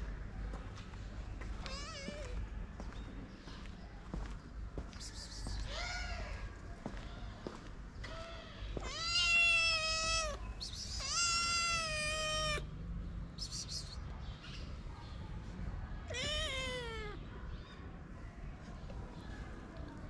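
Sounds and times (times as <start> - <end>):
kitten meowing: 8.8 - 12.6, 16.1 - 17.2.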